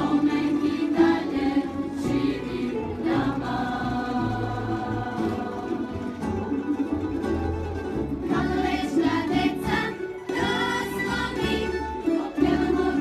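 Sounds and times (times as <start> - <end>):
mixed choir singing: 0.0 - 6.1, 8.2 - 13.0
bass: 0.0 - 13.0
plucked strings: 0.0 - 13.0.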